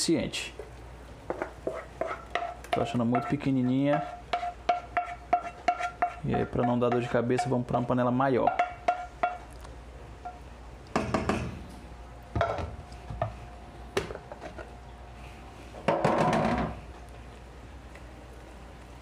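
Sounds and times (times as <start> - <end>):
wooden spoon scraping metal pan: 1.3 - 9.4.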